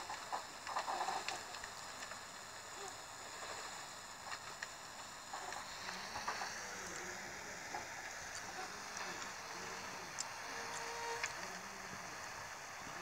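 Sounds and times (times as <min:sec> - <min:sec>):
air-conditioning hiss and hum: 0:00.0 - 0:13.0
faint clicks: 0:00.1 - 0:11.6
high whining tones: 0:05.3 - 0:13.0.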